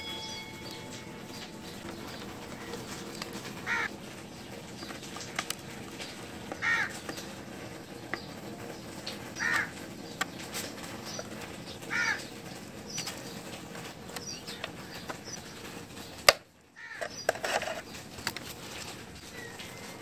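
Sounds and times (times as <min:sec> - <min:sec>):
crow cawing: 0:03.6 - 0:03.9, 0:06.6 - 0:07.0, 0:09.4 - 0:09.8, 0:11.9 - 0:12.3, 0:16.8 - 0:17.2
metal pick scraping plastic grille: 0:17.0 - 0:18.9.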